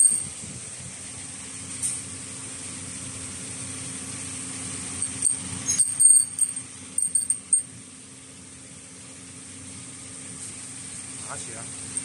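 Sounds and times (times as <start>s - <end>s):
metal rings clinking: 0.0s - 0.3s, 5.0s - 7.7s
low machine hum: 0.0s - 12.0s.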